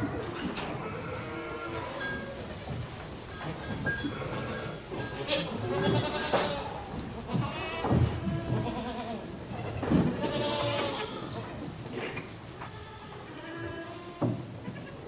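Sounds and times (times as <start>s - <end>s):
sheep bleating: 4.2s - 11.5s.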